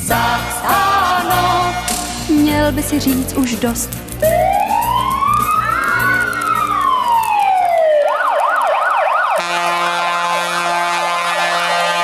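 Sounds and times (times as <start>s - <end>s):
fire engine siren wailing and yelping: 4.0s - 12.0s.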